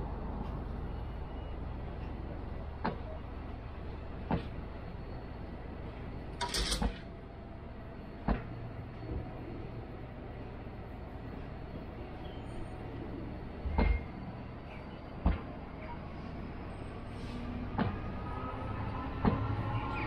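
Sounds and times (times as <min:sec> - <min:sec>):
metallic wheel clanks: 0:06.4 - 0:07.0.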